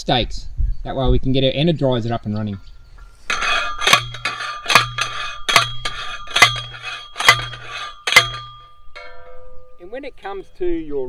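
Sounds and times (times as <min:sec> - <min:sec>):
post driver clanging on metal stake: 0:02.4 - 0:10.7.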